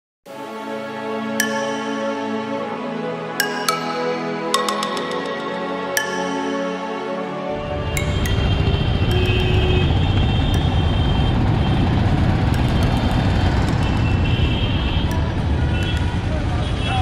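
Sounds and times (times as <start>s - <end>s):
vehicles passing: 7.5s - 17.0s.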